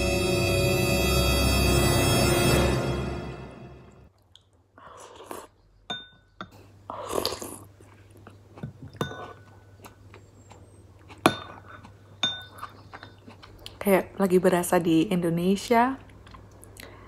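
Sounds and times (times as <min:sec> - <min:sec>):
slurping off a spoon: 0:04.8 - 0:05.6, 0:06.9 - 0:08.4
metal spoon clinking ceramic bowl: 0:05.9 - 0:06.5, 0:08.9 - 0:09.5, 0:11.3 - 0:13.2.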